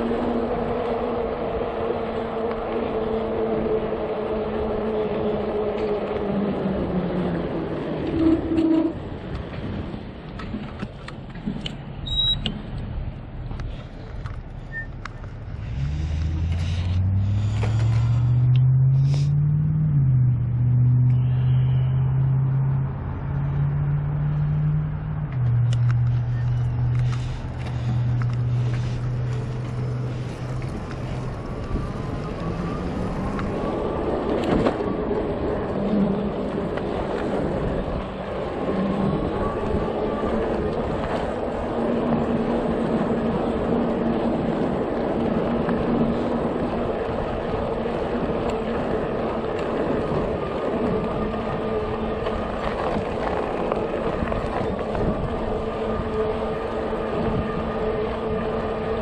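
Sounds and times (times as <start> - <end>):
road and wind noise: 0.0 - 59.0
vehicle engine running: 12.8 - 59.0.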